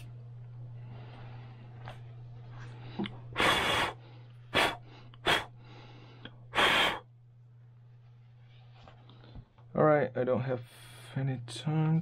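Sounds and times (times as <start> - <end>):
person puffing breaths: 2.8 - 7.1.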